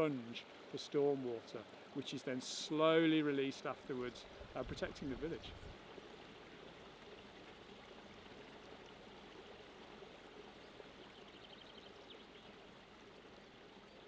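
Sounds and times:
faint stream running: 0.0 - 14.0.

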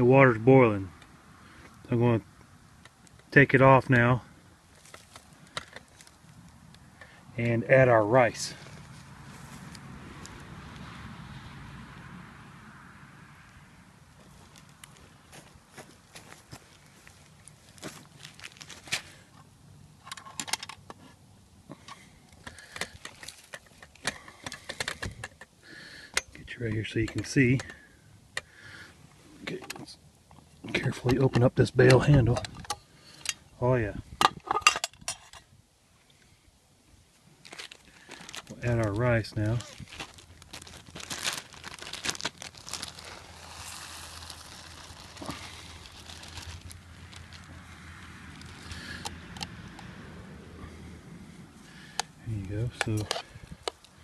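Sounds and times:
plastic bag rustling: 4.7 - 6.4, 14.2 - 19.3, 22.6 - 24.0, 37.4 - 49.0
sharp crackles: 14.1 - 19.2, 37.4 - 49.2
metal pot and handle clinking: 34.3 - 35.4.

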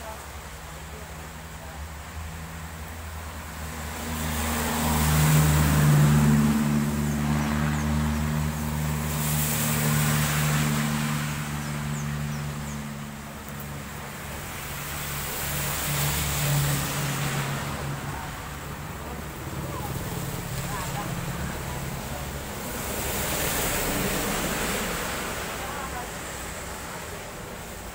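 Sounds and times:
engine drone: 0.0 - 27.9
tyres hissing on wet road: 0.0 - 27.9.

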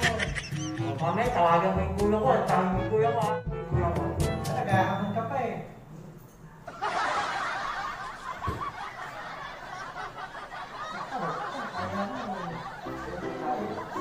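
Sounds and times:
crowd laughing: 0.0 - 1.1, 6.7 - 14.0.

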